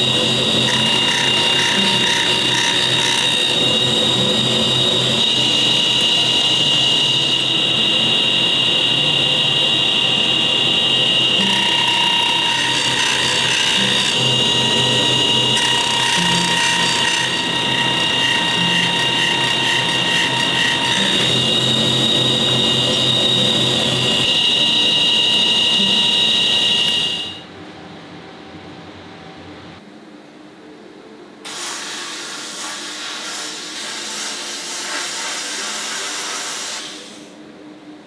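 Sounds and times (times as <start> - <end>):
power machinery whining: 0.0 - 27.4.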